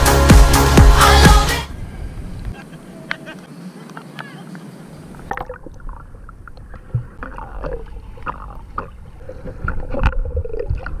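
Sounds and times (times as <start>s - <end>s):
underwater water sloshing: 3.0s - 11.0s
underwater clicks and knocks: 5.3s - 11.0s.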